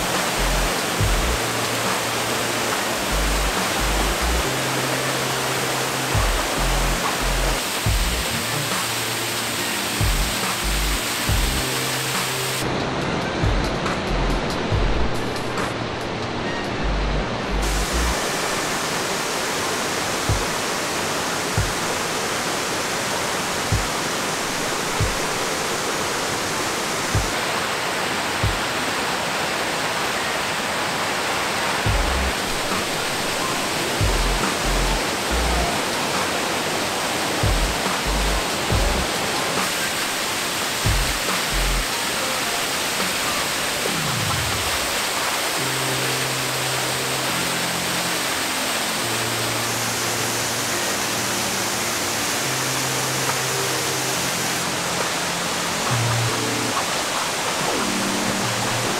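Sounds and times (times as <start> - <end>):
background music with bass thuds: 0.0 - 2.1, 2.8 - 4.6, 6.2 - 9.0, 10.0 - 12.4, 13.4 - 15.8, 31.9 - 32.9, 34.0 - 35.8, 37.4 - 39.2, 40.9 - 41.9
stream rushing over rocks: 0.0 - 16.6, 17.2 - 58.9.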